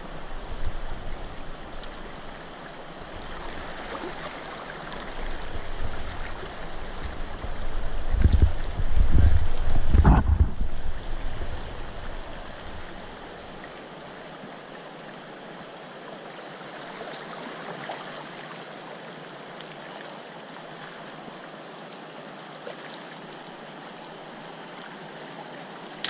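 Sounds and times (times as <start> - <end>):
river water rushing: 0.0 - 26.0
low rumble: 8.1 - 12.0.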